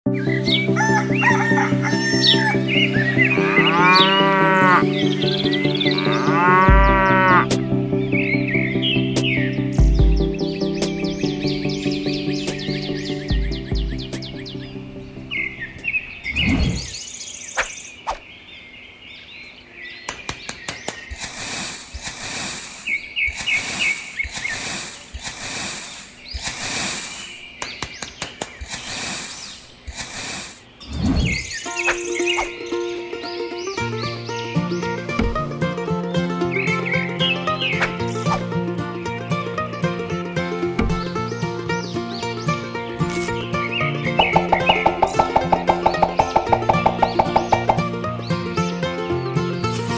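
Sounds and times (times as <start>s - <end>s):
background music: 0.1s - 16.8s, 31.7s - 49.9s
birds chirping: 0.1s - 49.9s
cow mooing: 3.3s - 5.0s, 5.9s - 7.5s
trowel scraping sand: 21.1s - 27.6s, 28.6s - 31.5s, 43.0s - 43.4s, 49.7s - 49.9s.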